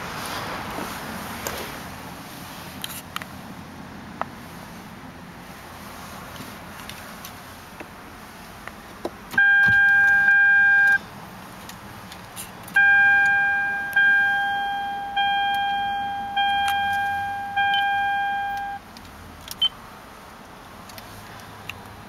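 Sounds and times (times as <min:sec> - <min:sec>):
electronic warning chimes: 0:09.4 - 0:11.0, 0:12.8 - 0:18.8
steady warning tone: 0:09.4 - 0:11.0, 0:12.8 - 0:18.8.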